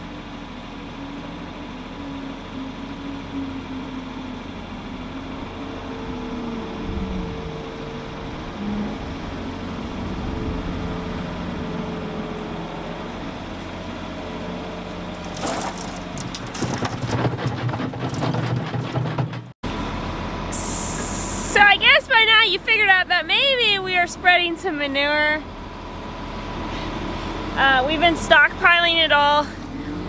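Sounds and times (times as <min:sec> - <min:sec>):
loader engine running: 0:00.0 - 0:30.0
manure thudding into spreader: 0:15.2 - 0:19.5.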